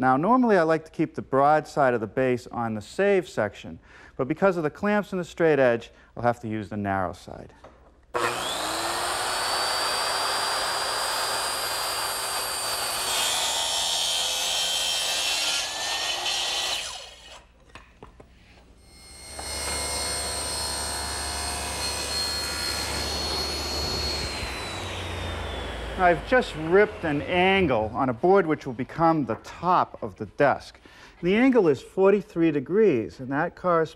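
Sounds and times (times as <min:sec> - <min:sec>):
circular saw cutting wood: 0:08.2 - 0:17.6, 0:18.9 - 0:27.9
table saw ripping wood: 0:08.2 - 0:17.6, 0:18.9 - 0:27.1.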